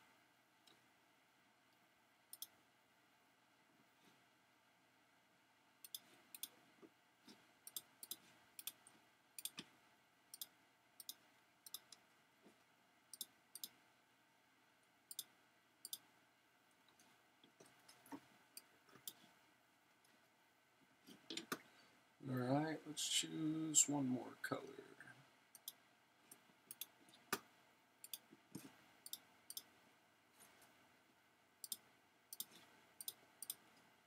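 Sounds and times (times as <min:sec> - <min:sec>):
computer mouse clicks: 0:01.7 - 0:02.6, 0:05.8 - 0:06.6, 0:07.3 - 0:09.7, 0:10.3 - 0:12.0, 0:13.1 - 0:13.8, 0:15.1 - 0:16.1, 0:16.9 - 0:19.4, 0:25.5 - 0:29.8, 0:31.6 - 0:33.9.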